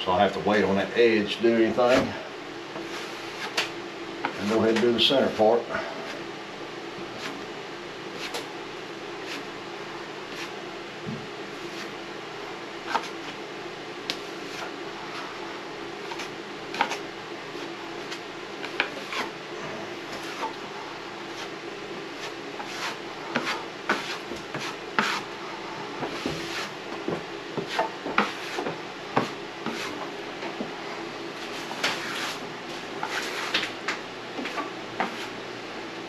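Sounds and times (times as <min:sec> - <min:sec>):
steady background hum: 0:00.0 - 0:36.0
drywall knife scraping ceiling: 0:22.2 - 0:25.3, 0:31.4 - 0:32.4, 0:33.0 - 0:33.7.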